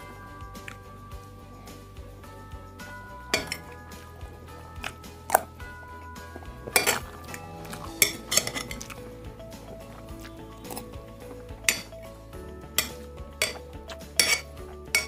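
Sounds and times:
quiet background music: 0:00.0 - 0:15.0
spoon clinking on plate: 0:03.3 - 0:03.8, 0:11.7 - 0:12.0, 0:12.8 - 0:15.0.

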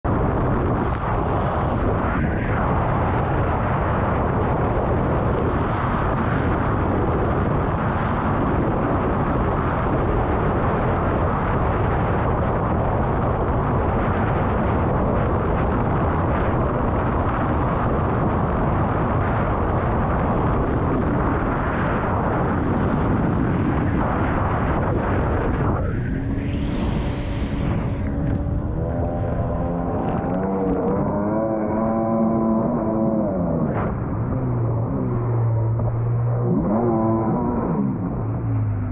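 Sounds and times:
wind buffeting microphone: 0:00.0 - 0:38.9
jet ski engine at high revs: 0:28.2 - 0:38.9.

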